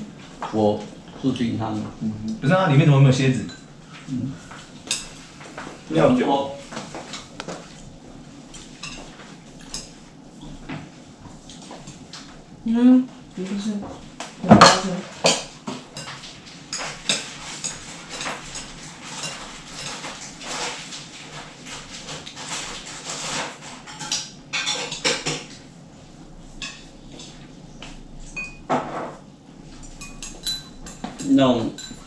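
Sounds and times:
chopsticks and spoons clinking on bowls: 3.3 - 7.8, 8.5 - 10.6, 14.4 - 25.6, 26.5 - 28.7, 29.7 - 32.0.

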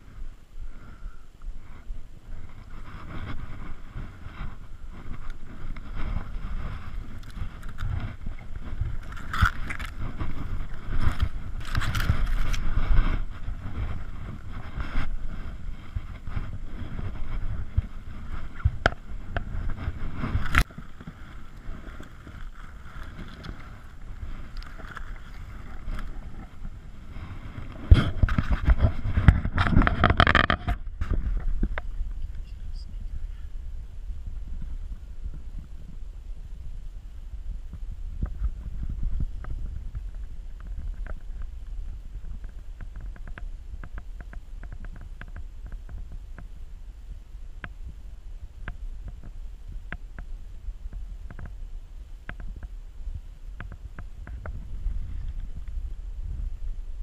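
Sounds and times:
wind rumble on microphone: 0.0 - 57.0
clothing rustling and scraping: 1.6 - 31.8.

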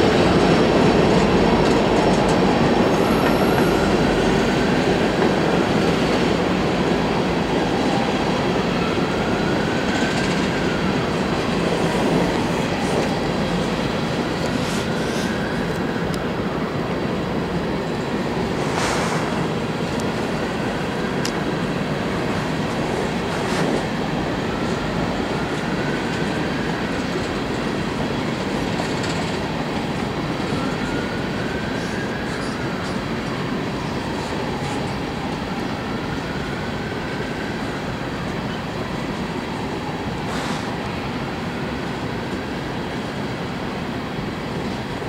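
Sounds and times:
rail cars rumbling and rattling: 0.0 - 45.0.

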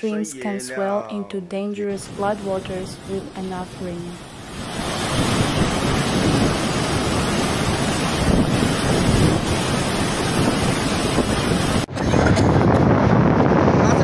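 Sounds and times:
floodwater rushing: 1.9 - 11.9.

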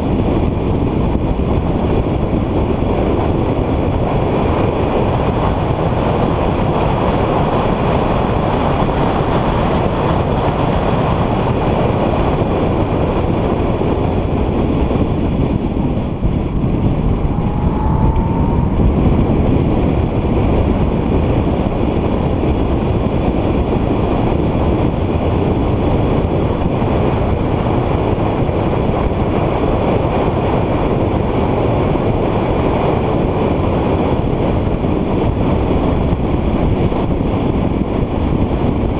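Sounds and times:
car engine and road noise: 0.0 - 38.9
faint rising whine: 16.1 - 21.3.

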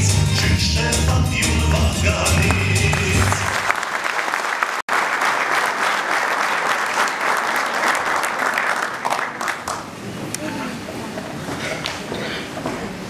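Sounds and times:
song ending: 0.0 - 3.7
audience applauding: 2.3 - 10.0.

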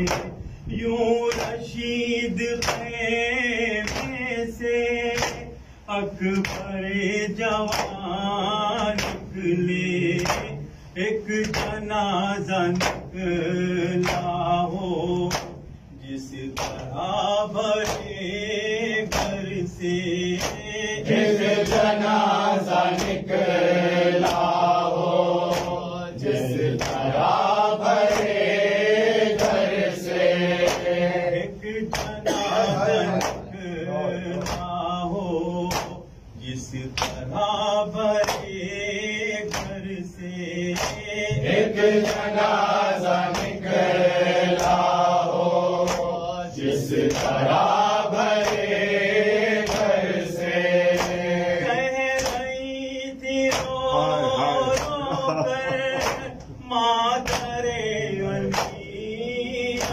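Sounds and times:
hands slapping chests: 0.0 - 0.4, 1.3 - 1.6, 2.6 - 2.9, 3.8 - 4.2, 5.2 - 5.5, 6.4 - 6.7, 7.7 - 8.0, 8.9 - 9.2, 11.4 - 11.8, 12.8 - 13.1, 14.0 - 14.4, 15.3 - 15.6, 16.6 - 16.9, 19.1 - 19.4, 20.4 - 20.6, 22.9 - 23.2, 24.2 - 24.6, 25.4 - 25.8, 26.7 - 27.2, 27.9 - 28.4, 30.6 - 30.9, 31.9 - 32.2, 32.9 - 33.5, 34.4 - 34.7, 35.7 - 36.0, 39.5 - 39.8, 40.8 - 42.3, 43.2 - 43.6, 45.8 - 46.2, 47.0 - 47.5, 48.3 - 48.7, 49.6 - 50.0, 50.9 - 52.5, 53.4 - 53.8, 54.7 - 56.6, 57.2 - 57.5
men chanting a lament: 0.0 - 59.9.

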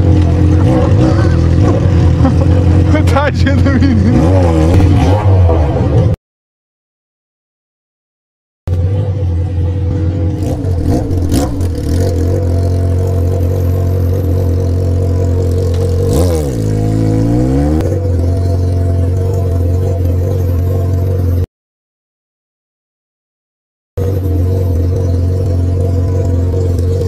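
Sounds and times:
motorcycle engine idling: 0.0 - 4.2, 8.7 - 21.4, 24.0 - 27.0.

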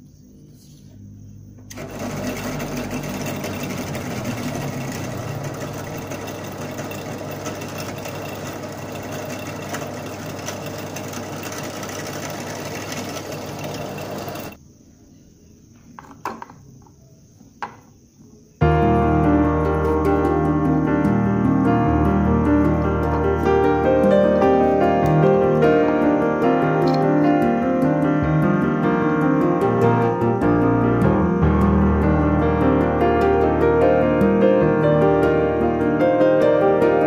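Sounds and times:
drill press boring into wood: 1.7 - 14.6
piano music: 1.7 - 14.6, 18.6 - 37.0
small knocks: 15.9 - 17.9.

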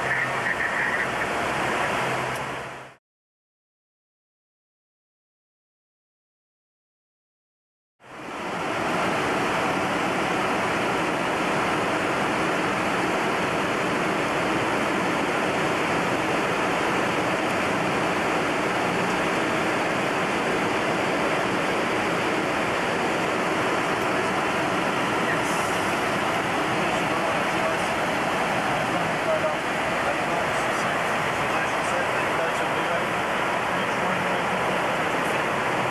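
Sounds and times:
aircraft cockpit rushing hiss: 25.3 - 26.1.

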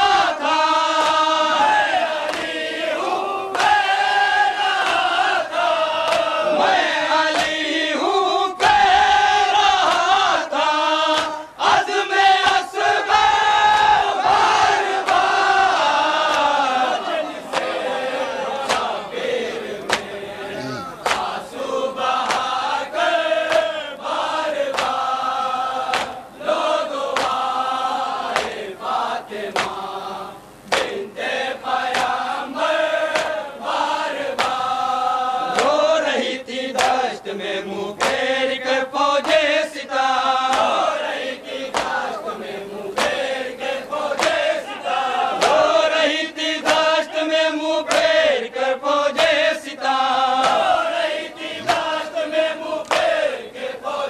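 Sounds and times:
men chanting in unison: 0.0 - 54.0
hands slapping chest: 2.3 - 2.5, 6.0 - 6.3, 7.3 - 7.6, 9.9 - 10.1, 11.1 - 11.4, 19.9 - 20.1, 21.0 - 21.4, 22.2 - 22.5, 23.5 - 23.7, 24.7 - 25.0, 25.9 - 26.2, 27.2 - 27.4, 28.3 - 28.6, 29.5 - 29.8, 31.9 - 32.2, 33.1 - 33.4, 36.8 - 37.0, 38.0 - 38.2, 40.5 - 40.7, 41.7 - 42.0, 43.0 - 43.2, 44.2 - 44.4, 46.6 - 46.9, 50.4 - 50.7, 51.6 - 52.0, 52.8 - 53.2.

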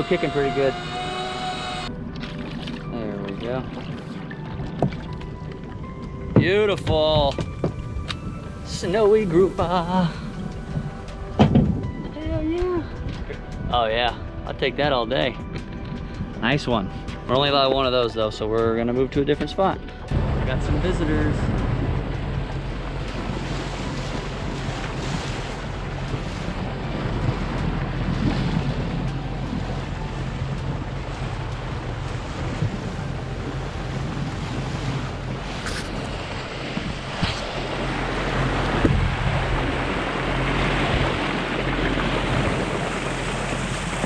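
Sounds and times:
outboard engines humming: 0.0 - 44.0
water splashing along boat bow: 0.0 - 44.0
wind buffeting microphone: 2.8 - 44.0.

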